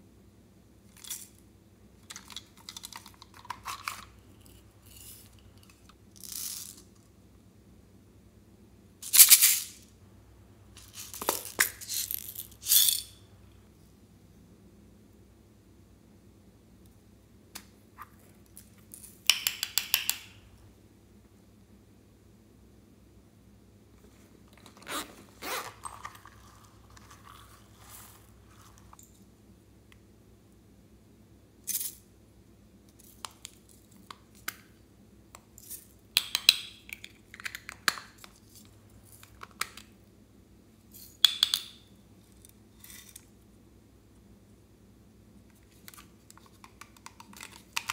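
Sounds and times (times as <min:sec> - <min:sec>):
plastic cases clicking and clattering: 0:02.0 - 0:04.1.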